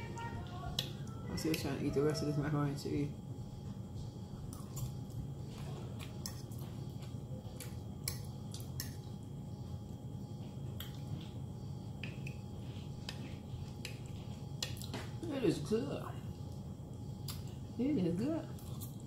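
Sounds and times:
low steady hum: 0.0 - 19.0
chewing with small clicks: 4.4 - 12.4, 13.0 - 15.0, 16.5 - 17.6.

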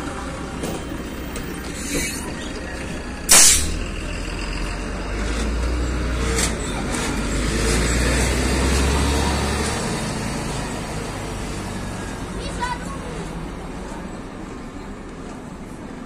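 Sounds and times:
bus diesel engine drone: 0.0 - 16.0
compressed air hiss: 3.3 - 3.8.

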